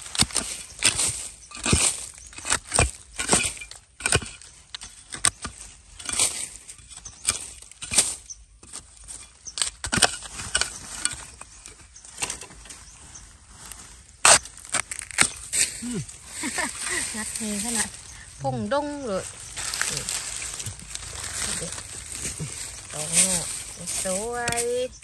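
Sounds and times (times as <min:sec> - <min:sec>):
metal blade chopping into soil: 0:00.0 - 0:11.6, 0:14.2 - 0:15.9, 0:23.0 - 0:25.0.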